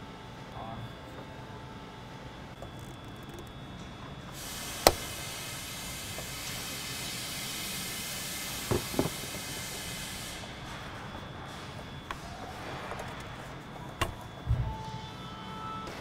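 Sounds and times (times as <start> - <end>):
steady hiss: 4.3 - 10.6.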